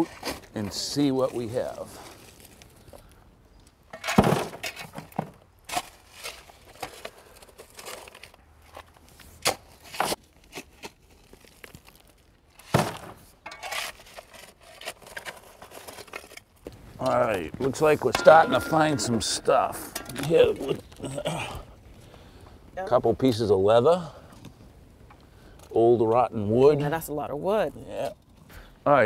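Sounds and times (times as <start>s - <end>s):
shovels scraping through gravel: 13.5s - 16.4s
clinks of stone: 18.0s - 20.8s.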